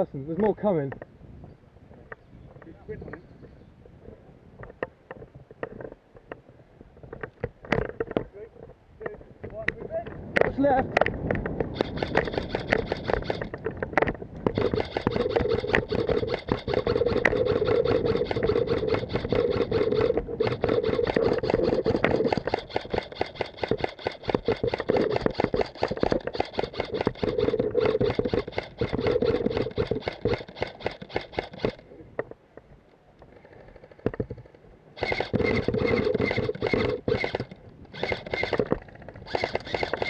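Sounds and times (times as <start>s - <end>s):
airsoft gun full-auto bursts: 11.7s - 13.5s, 14.5s - 31.8s, 35.0s - 38.7s, 39.3s - 40.0s.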